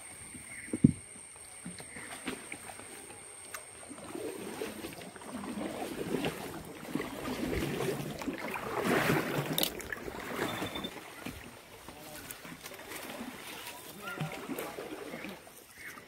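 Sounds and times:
paddle splashing through water: 1.4 - 16.0.

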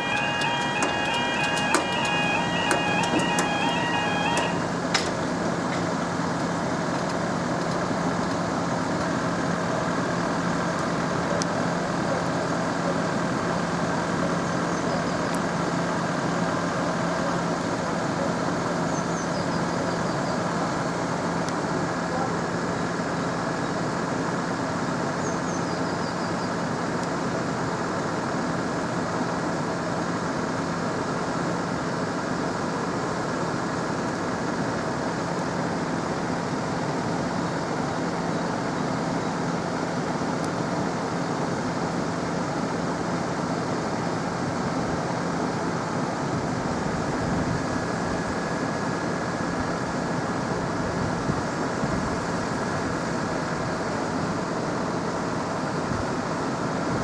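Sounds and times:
level crossing alarm tone: 0.0 - 4.9.

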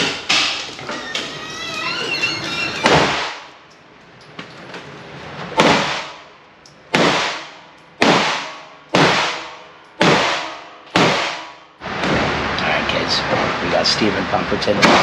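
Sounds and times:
gunshots with reverberant echo: 5.6 - 11.7.

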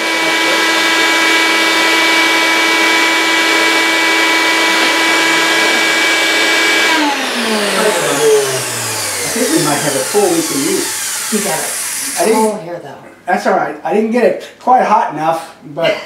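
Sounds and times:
vacuum cleaner motor whining: 0.0 - 12.6.

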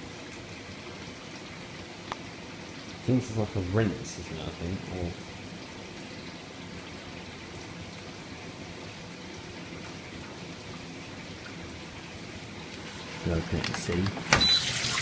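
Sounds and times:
dishwasher water spraying: 12.7 - 15.0.

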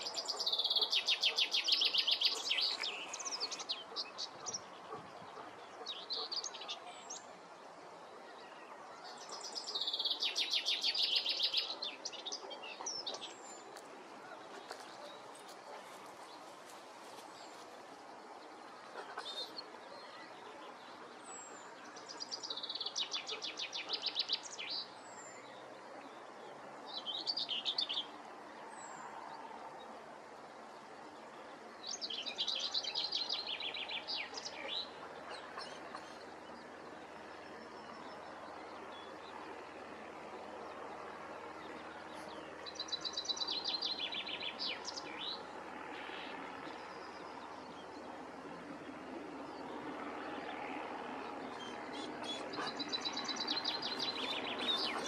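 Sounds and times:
bird twittering song: 0.0 - 7.3, 8.4 - 17.6, 21.3 - 26.2, 31.8 - 39.7, 40.8 - 48.1, 49.4 - 55.0
steady background noise: 0.0 - 55.0.

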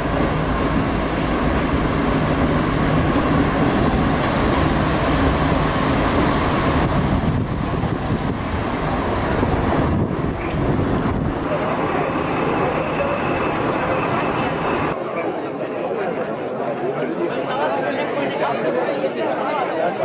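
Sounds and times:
train rumbling: 0.0 - 15.0.

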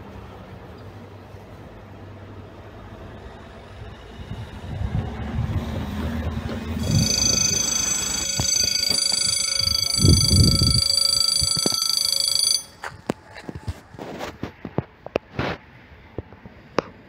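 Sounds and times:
level crossing warning bell: 6.8 - 13.0.

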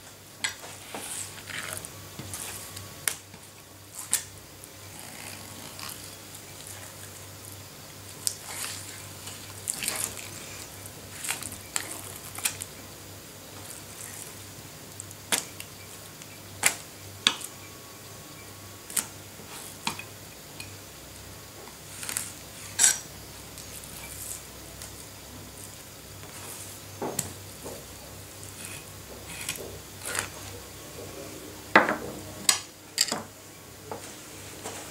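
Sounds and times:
faint steady hum: 0.0 - 34.9.

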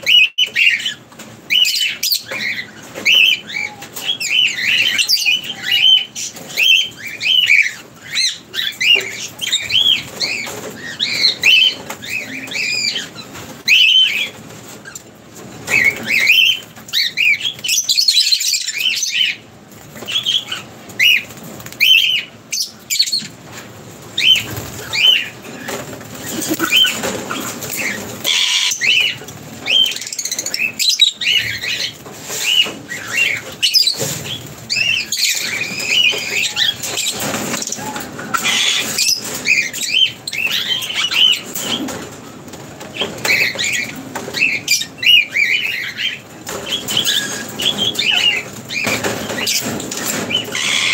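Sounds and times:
wings flapping: 19.6 - 50.9
lovebirds chirping: 24.2 - 42.0.

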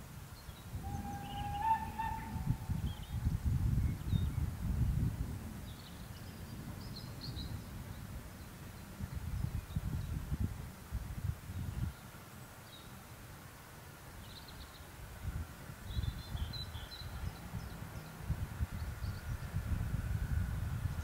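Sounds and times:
wind on microphone: 0.0 - 12.2, 15.0 - 21.0
bird chirps: 0.4 - 3.3
distant steam locomotive: 0.6 - 3.2.

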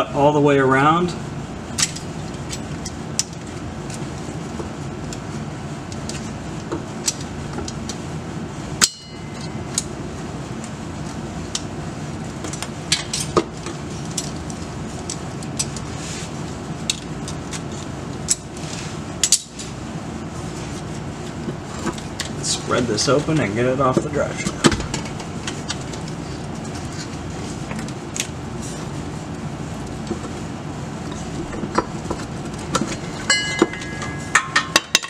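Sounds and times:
steady low hum: 0.0 - 35.0
knife clinking on metal: 33.3 - 35.0.

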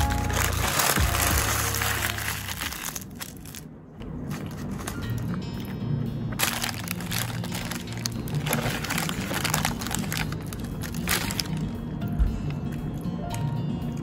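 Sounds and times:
paper wrapper crinkling: 0.0 - 5.7, 6.3 - 11.8
background music: 0.0 - 14.0.

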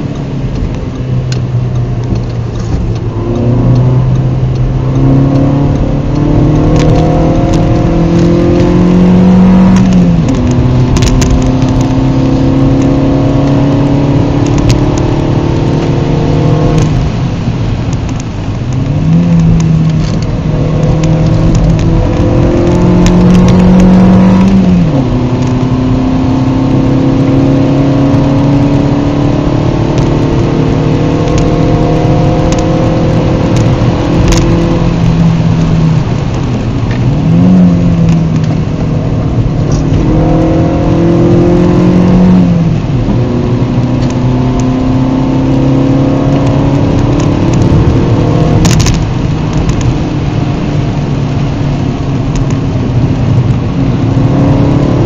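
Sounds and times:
car engine accelerating: 0.0 - 55.0
road and tyre noise: 0.0 - 55.0.

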